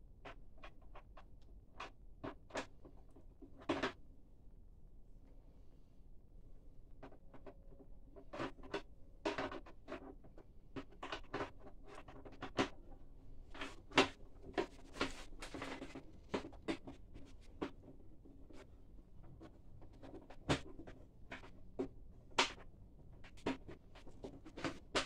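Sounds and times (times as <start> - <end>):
wire rattling against plastic: 8.2 - 25.0.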